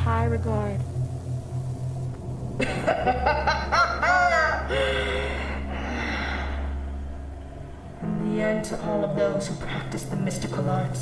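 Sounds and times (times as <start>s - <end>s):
low steady hum: 0.0s - 11.0s
woman laughing: 2.6s - 5.0s.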